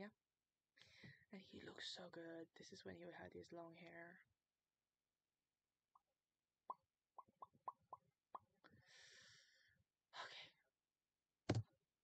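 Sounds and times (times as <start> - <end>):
soft breaths: 8.7 - 9.8.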